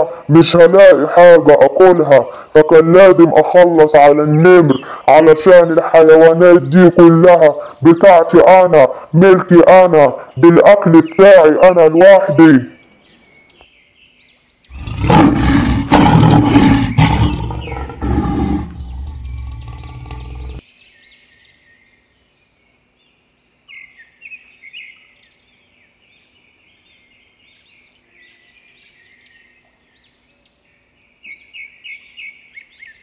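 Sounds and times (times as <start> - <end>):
birds chirping: 0.0 - 33.0
lion roar: 14.7 - 20.6.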